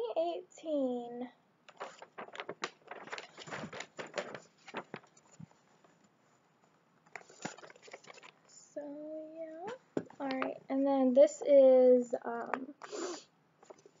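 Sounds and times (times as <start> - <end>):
paper poster rustling and crinkling: 1.7 - 6.2, 7.1 - 8.6, 9.6 - 10.6, 13.6 - 14.0.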